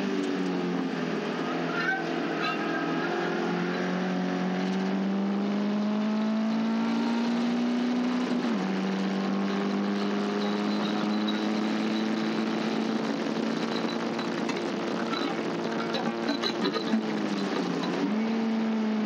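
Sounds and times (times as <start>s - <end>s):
race car engine accelerating: 0.0s - 19.0s
gear upshift: 6.8s - 18.5s.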